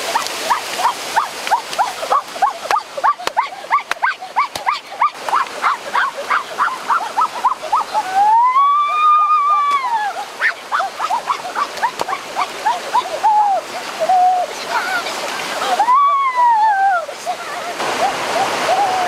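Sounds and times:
shallow stream rushing: 0:00.0 - 0:19.0
high-pitched yelping cries: 0:00.1 - 0:14.5.

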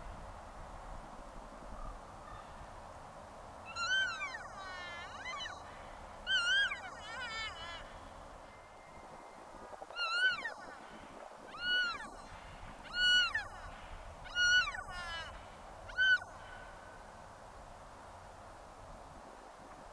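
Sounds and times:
elk calling: 0:03.7 - 0:07.9, 0:10.0 - 0:10.9, 0:11.5 - 0:16.6.

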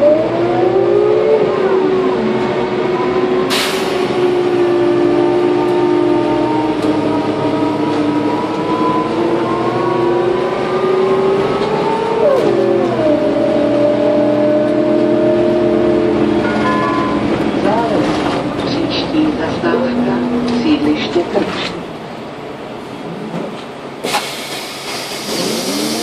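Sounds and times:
bus gearbox whine and engine: 0:00.0 - 0:22.2, 0:22.9 - 0:26.0
short sharp hiss: 0:24.0 - 0:25.4.

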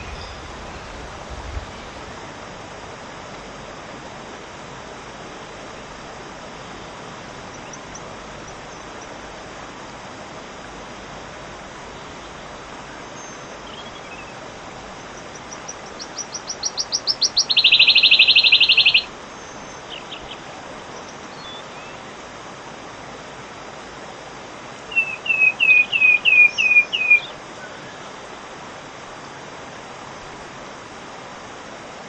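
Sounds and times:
bird singing trill: 0:00.0 - 0:01.0, 0:07.5 - 0:09.2, 0:13.1 - 0:14.4, 0:15.0 - 0:22.1, 0:24.9 - 0:28.0
steady hiss: 0:00.0 - 0:32.0.

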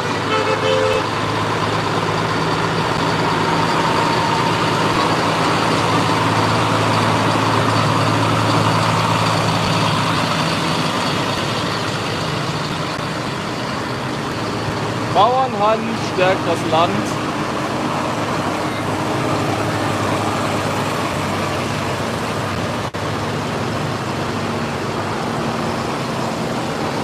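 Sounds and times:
tractor diesel engines droning: 0:00.0 - 0:27.0.

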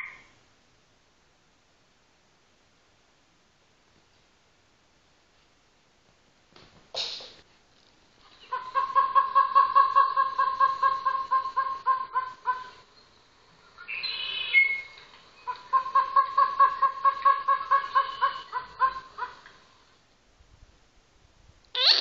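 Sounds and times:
recorded bird call: 0:00.0 - 0:00.4, 0:08.2 - 0:19.9, 0:21.8 - 0:22.0.

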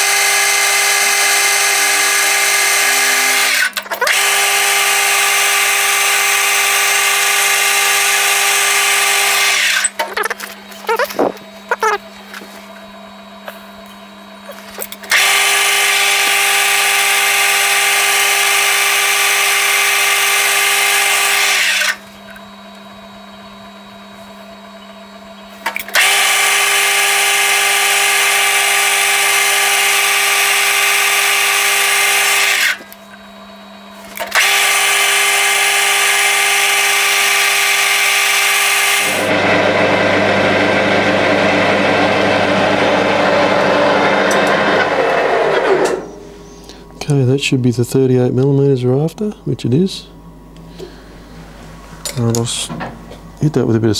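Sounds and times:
lathe cutting whine: 0:00.0 - 0:09.9, 0:34.4 - 0:46.6
lathe running hum: 0:00.0 - 0:25.4, 0:26.0 - 0:47.1
rough lower cutting noise: 0:39.0 - 0:46.4.

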